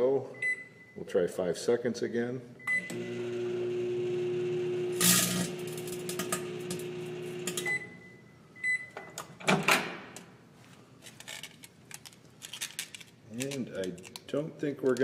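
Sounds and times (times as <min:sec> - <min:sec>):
microwave beeps: 0:00.4 - 0:01.0, 0:02.6 - 0:09.2
microwave oven humming: 0:02.7 - 0:08.2
disc crackling and snapping: 0:11.1 - 0:15.0.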